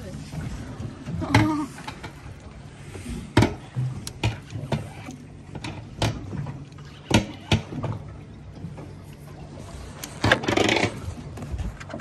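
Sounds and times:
low steady hum: 0:00.0 - 0:12.0
knocks and thuds on boat: 0:00.2 - 0:02.2, 0:03.2 - 0:09.0.

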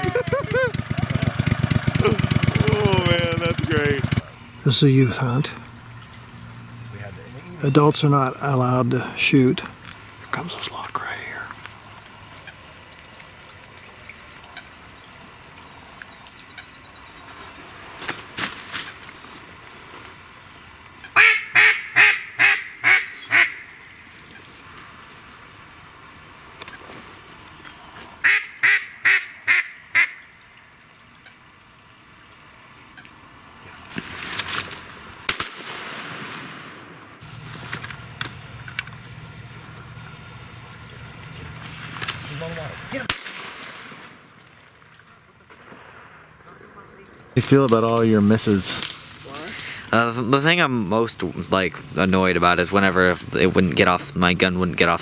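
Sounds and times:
low steady rumble: 0:00.0 - 0:18.0, 0:34.7 - 0:55.0
rustling brush: 0:33.6 - 0:35.2, 0:37.2 - 0:38.4
faint sharp cracks: 0:33.9 - 0:39.1, 0:43.0 - 0:49.7
shotgun shots with echo: 0:35.3 - 0:37.0, 0:43.0 - 0:44.2.

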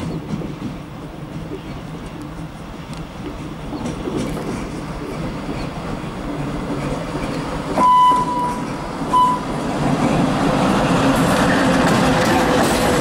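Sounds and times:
diesel locomotive rumbling: 0:00.0 - 0:13.0
train horn blasts: 0:07.8 - 0:09.5.

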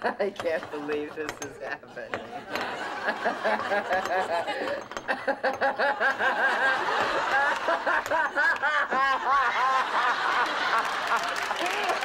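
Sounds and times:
woman cackling laughter: 0:03.0 - 0:11.4.

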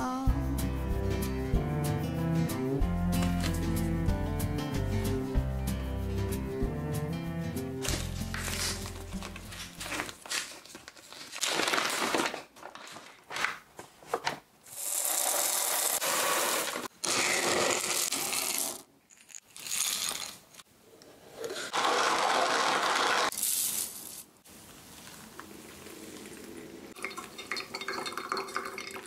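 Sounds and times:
paper bag crinkling: 0:07.8 - 0:13.9
coffee beans pouring into glass jar: 0:14.7 - 0:20.4, 0:22.0 - 0:24.2, 0:27.0 - 0:29.0
hand coffee grinder grinding: 0:14.7 - 0:20.6, 0:21.4 - 0:24.1.

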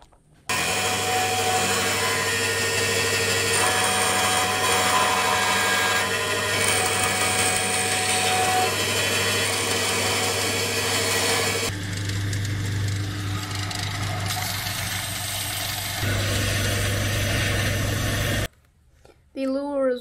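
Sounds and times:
bandsaw cutting wood: 0:00.5 - 0:18.5.

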